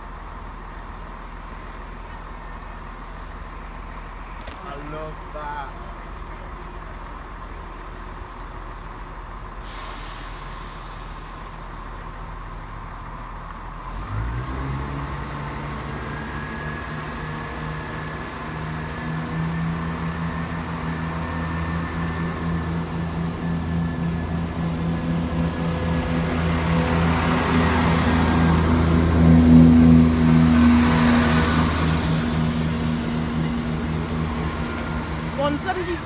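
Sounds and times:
diesel train engine: 0.0s - 36.0s
air hiss: 9.6s - 11.8s.

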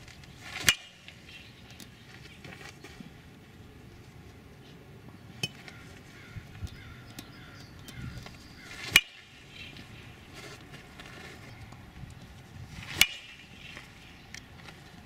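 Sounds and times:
baseball impacts: 0.5s - 1.4s, 8.7s - 11.0s, 12.8s - 14.3s.

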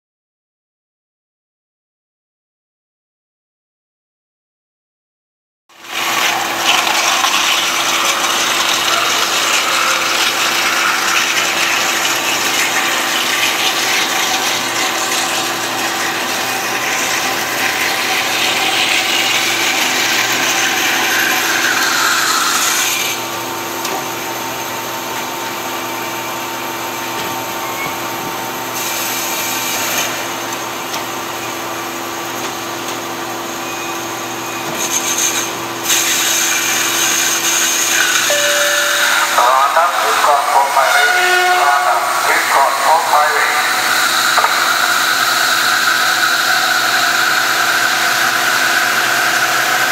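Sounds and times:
band saw cutting steel: 5.8s - 23.4s, 28.8s - 30.5s, 34.6s - 49.9s.

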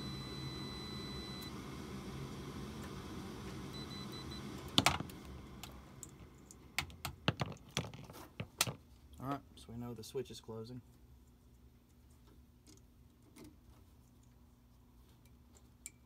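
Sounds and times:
multimeter continuity beep: 0.0s - 1.5s, 3.7s - 4.5s
furnace draft inducer humming: 0.0s - 7.8s.

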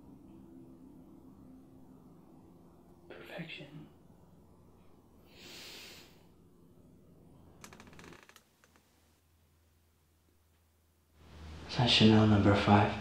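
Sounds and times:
low steady hum: 0.0s - 13.0s
small clicks and rustles: 7.6s - 9.1s.

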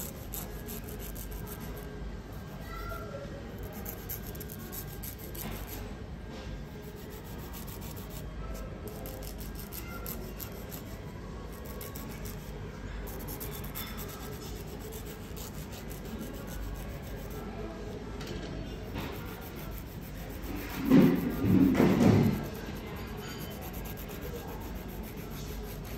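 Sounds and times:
nail file rubbing fingernail: 0.0s - 1.9s, 3.6s - 5.8s, 6.8s - 17.4s, 19.0s - 25.9s.

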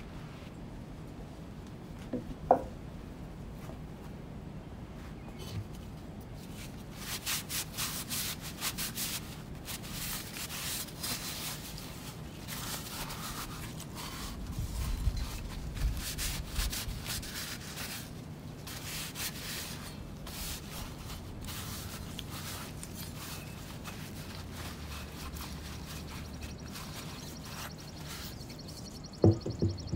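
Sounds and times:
sandpaper rubbing: 6.5s - 28.9s
low bumps: 29.2s - 29.9s.

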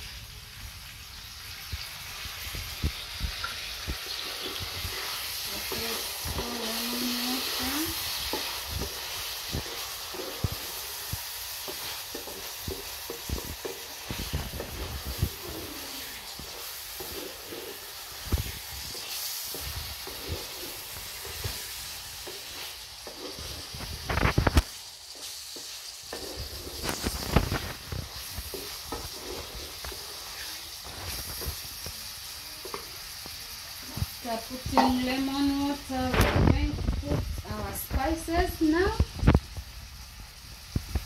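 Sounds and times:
liver sizzling in sauce: 0.0s - 41.0s
utensil scraping metal pot: 4.0s - 31.6s.

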